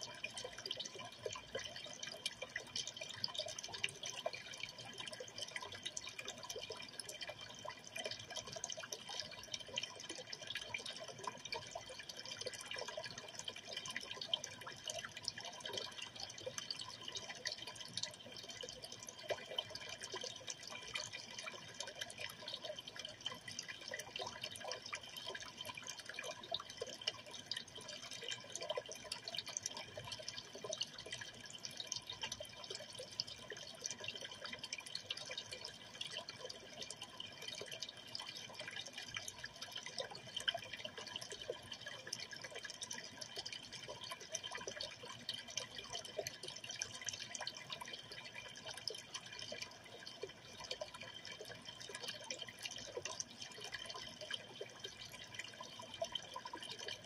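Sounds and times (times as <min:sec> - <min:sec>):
aquarium water trickling: 0:00.0 - 0:57.0.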